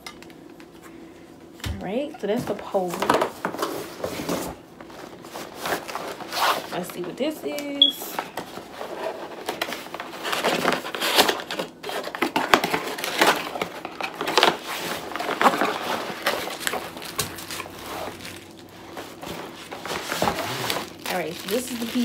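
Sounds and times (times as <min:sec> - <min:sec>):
plastic packaging crinkling: 0:08.3 - 0:22.0.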